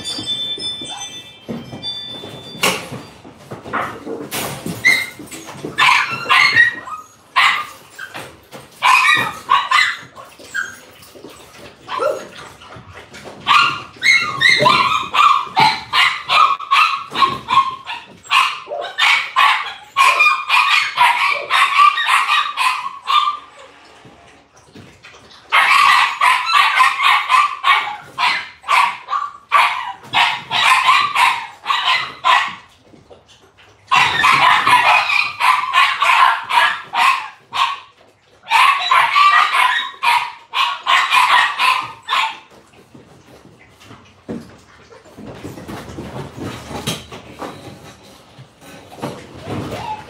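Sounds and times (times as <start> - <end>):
dog barking: 7.4 - 7.8, 8.8 - 10.0, 13.4 - 23.5, 25.5 - 32.7, 33.9 - 42.5.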